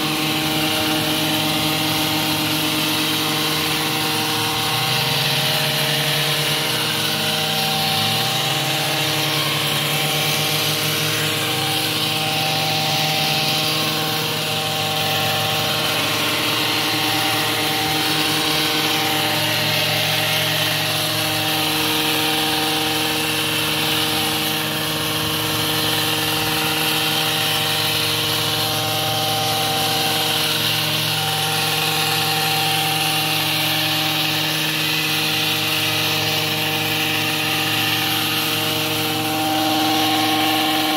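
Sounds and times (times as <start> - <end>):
hedge trimmer engine running: 0.0 - 40.9.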